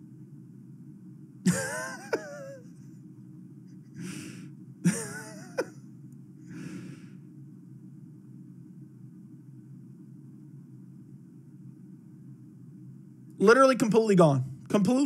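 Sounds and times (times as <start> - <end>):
low hum: 0.0 - 15.0
man chuckling: 1.5 - 3.0, 4.8 - 5.8
breathy exhales: 4.0 - 4.5, 6.4 - 7.2.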